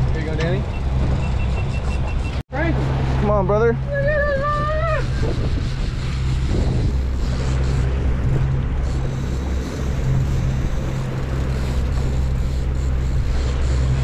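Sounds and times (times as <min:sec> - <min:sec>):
outboard motor running: 0:00.0 - 0:14.0
rushing water from wake: 0:02.5 - 0:14.0
wind on microphone: 0:03.8 - 0:14.0
person shouting: 0:03.9 - 0:05.1.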